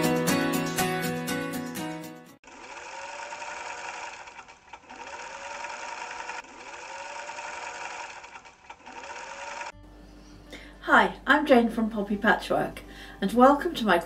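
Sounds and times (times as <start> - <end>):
electric sewing machine stitching: 2.4 - 9.8.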